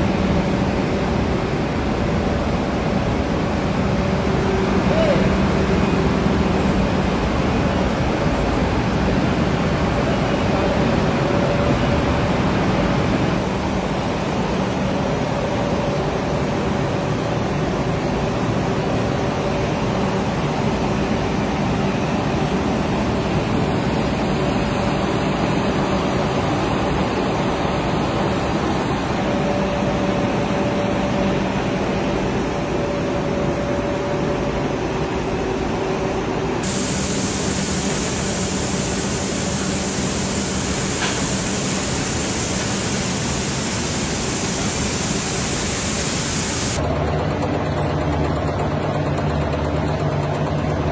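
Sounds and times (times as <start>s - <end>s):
processing machinery running: 36.6s - 47.7s.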